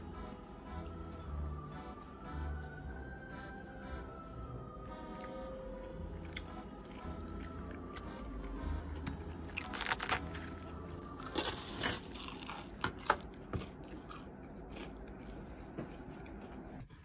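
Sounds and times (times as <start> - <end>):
crispy fried pork crunching: 6.2 - 17.0.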